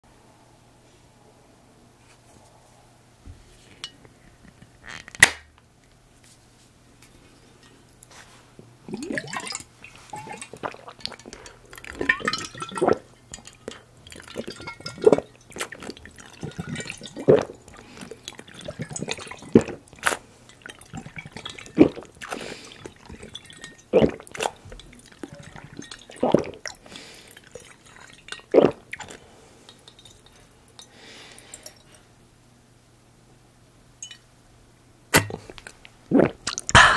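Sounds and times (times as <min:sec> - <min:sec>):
liquid sloshing in glass bottle: 0:07.4 - 0:32.0
loud gulps: 0:08.8 - 0:13.0, 0:14.2 - 0:20.1, 0:20.8 - 0:26.8, 0:28.5 - 0:29.2, 0:35.1 - 0:36.9.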